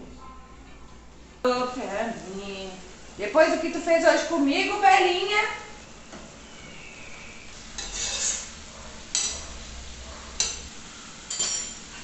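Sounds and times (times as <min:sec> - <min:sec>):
faint cooking hiss: 0:00.0 - 0:12.0
vegetables stirred in saucepan: 0:07.5 - 0:12.0
metal clinking against pan: 0:09.1 - 0:09.4, 0:10.4 - 0:10.7, 0:11.3 - 0:11.8.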